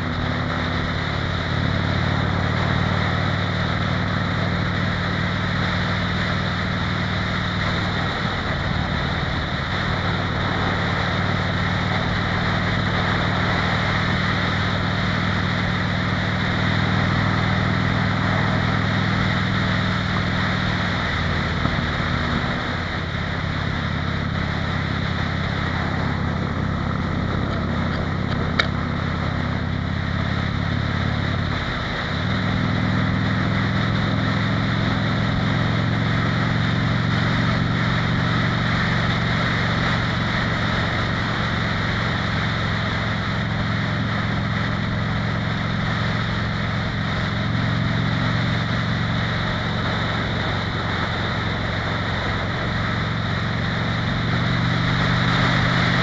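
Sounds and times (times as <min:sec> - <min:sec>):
motorcycle engine running: 0:00.0 - 0:56.0
wind on microphone: 0:16.3 - 0:35.5.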